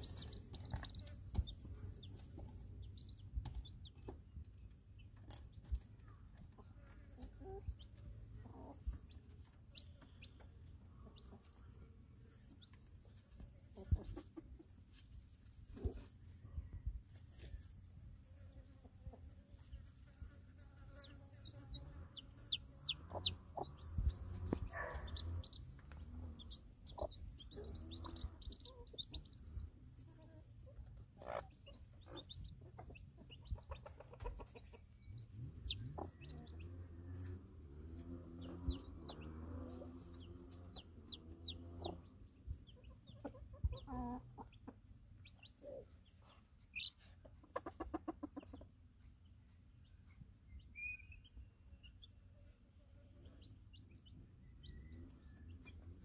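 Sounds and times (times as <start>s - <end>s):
hen clucking: 0.0s - 4.3s, 18.2s - 50.2s
chicks peeping: 0.0s - 56.0s.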